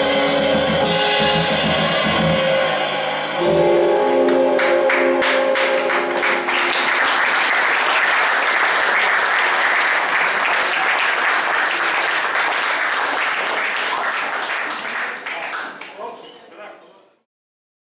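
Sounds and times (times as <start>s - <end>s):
jazz band notes: 0.0s - 7.7s
audience applauding: 4.2s - 16.1s.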